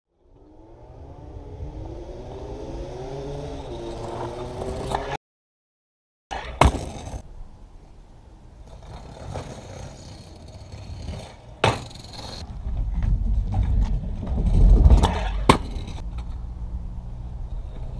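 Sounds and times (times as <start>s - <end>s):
scooter wheels rolling on asphalt: 0.3s - 5.2s, 6.3s - 17.9s
scooter landing clack: 6.3s - 7.2s, 8.8s - 16.4s
scooter clacking on paving: 8.6s - 16.5s.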